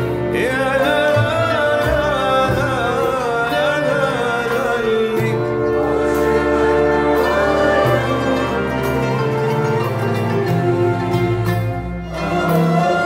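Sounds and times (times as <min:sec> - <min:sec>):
orchestra with bowed violins: 0:00.0 - 0:13.0
man singing ornamented melody: 0:00.2 - 0:09.2.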